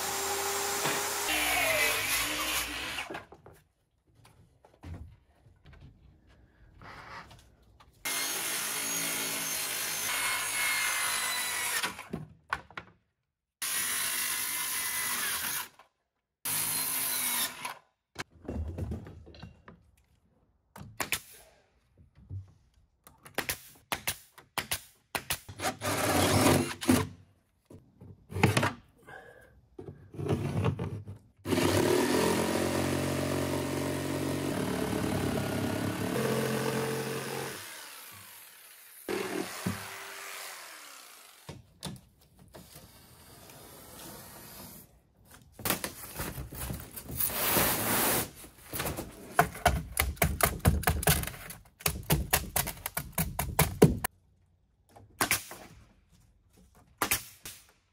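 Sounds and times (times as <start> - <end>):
jigsaw cutting wood: 0.0 - 3.2, 8.1 - 12.1, 13.6 - 15.7, 16.5 - 17.8, 25.6 - 27.0, 31.5 - 41.6
power tools working wood: 0.0 - 3.2, 8.1 - 12.1, 31.5 - 41.6.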